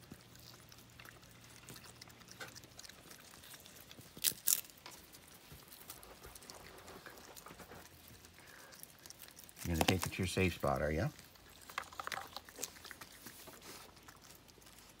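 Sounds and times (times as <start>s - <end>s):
animal chewing and smacking: 0.0s - 15.0s
sharp crunches: 2.3s - 6.5s.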